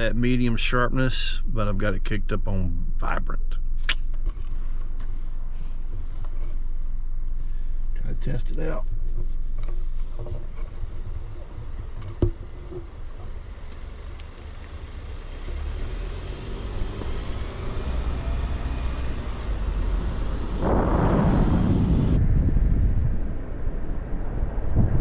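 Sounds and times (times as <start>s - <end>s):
car road and engine rumble: 0.0s - 22.3s
wind buffeting microphone: 19.2s - 25.0s.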